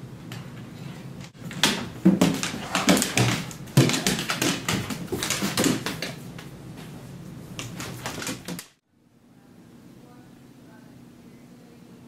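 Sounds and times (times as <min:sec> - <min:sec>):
dog claws clicking on wood floor: 0:01.3 - 0:06.5, 0:07.6 - 0:08.7
paws thumping and scrabbling: 0:01.4 - 0:07.0, 0:07.6 - 0:08.7.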